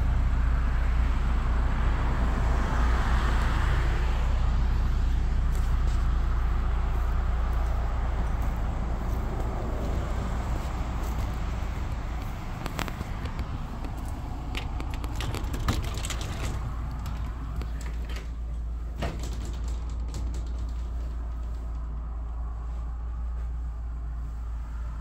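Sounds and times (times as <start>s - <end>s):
steady low rumble: 0.0s - 25.0s
screen door clicks and knocks: 13.2s - 22.1s.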